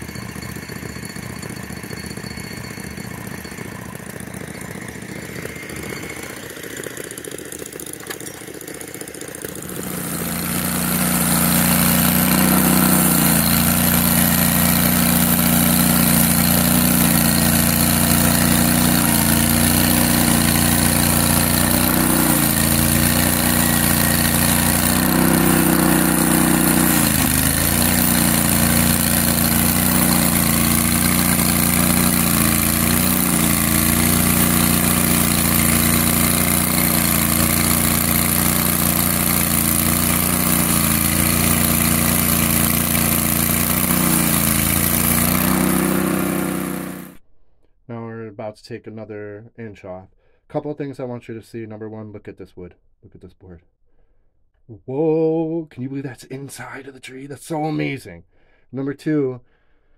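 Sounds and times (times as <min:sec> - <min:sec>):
engine drone: 0:00.0 - 0:47.2.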